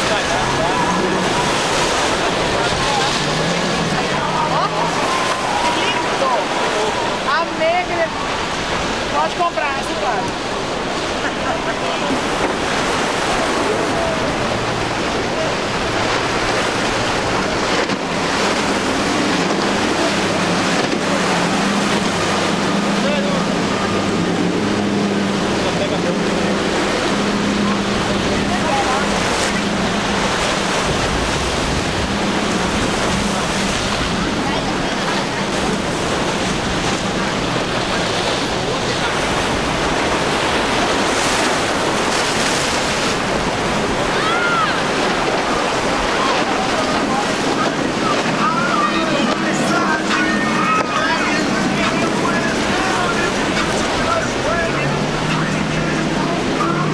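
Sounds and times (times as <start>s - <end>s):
hull spray: 0.0s - 56.9s
outboard engine drone: 0.0s - 56.9s
surf rushing: 0.0s - 56.9s
wind on microphone: 12.0s - 56.9s.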